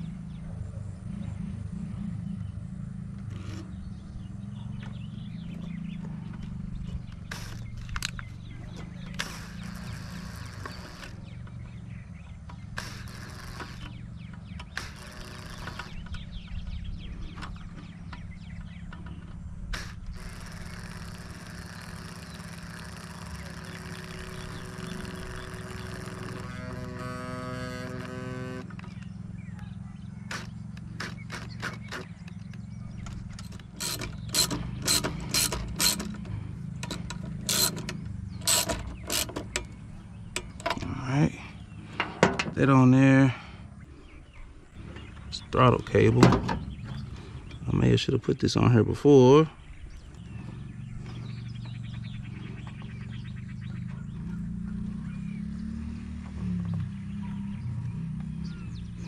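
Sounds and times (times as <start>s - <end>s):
steady low hum: 0.0s - 59.0s
drill clicks: 6.9s - 11.6s, 12.4s - 16.3s, 18.9s - 29.1s, 30.3s - 41.0s
cordless drill driving screw: 7.2s - 8.2s, 9.0s - 11.2s, 12.8s - 14.0s, 14.6s - 16.1s, 19.7s - 28.8s, 30.3s - 32.4s, 33.1s - 39.8s.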